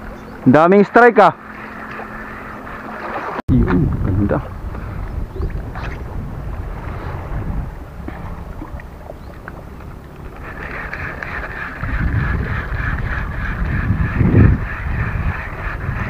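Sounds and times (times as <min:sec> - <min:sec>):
wind buffeting microphone: 0:02.7 - 0:16.0
high whirring: 0:10.2 - 0:16.0.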